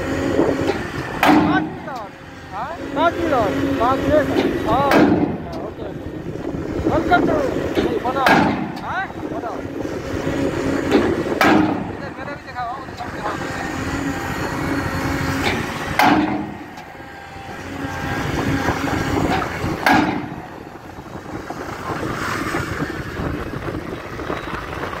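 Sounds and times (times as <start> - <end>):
machine drone: 0.0 - 25.0
pile hammer striking steel: 1.2 - 1.6, 7.8 - 8.8, 10.9 - 11.9, 16.0 - 16.5, 19.8 - 20.3.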